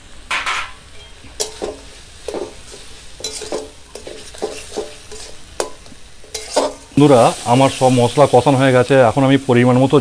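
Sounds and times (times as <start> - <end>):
food sizzling: 0.0 - 10.0
metal spatula scraping a pan: 1.4 - 7.0.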